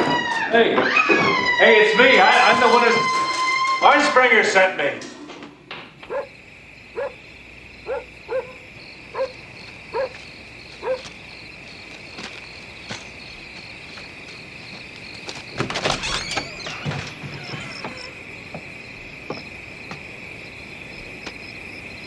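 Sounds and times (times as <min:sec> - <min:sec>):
dog barking: 0:06.0 - 0:07.2, 0:07.8 - 0:10.2, 0:10.8 - 0:11.2.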